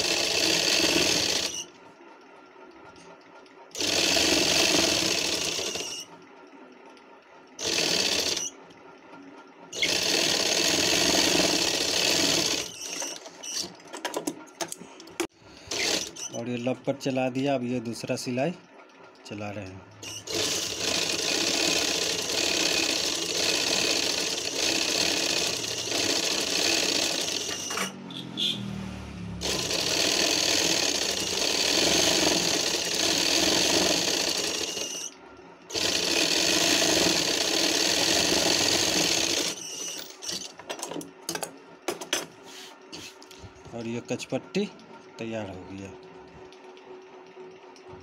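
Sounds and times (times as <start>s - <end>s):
sewing machine stitching: 0.0s - 1.7s, 3.7s - 6.2s, 7.6s - 8.6s, 9.7s - 14.5s, 15.7s - 16.4s, 20.0s - 28.5s, 29.4s - 40.6s.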